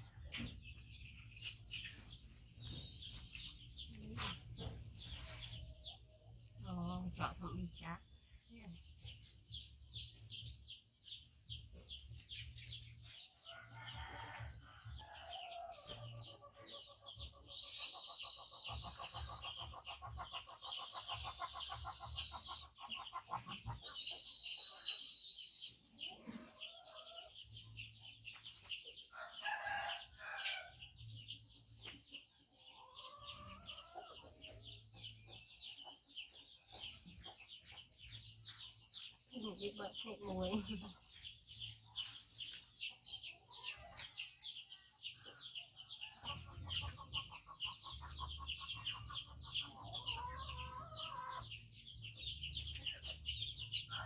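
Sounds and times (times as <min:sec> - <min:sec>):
hens clucking: 0:15.0 - 0:24.9, 0:31.8 - 0:54.0
roosters crowing: 0:29.1 - 0:30.9.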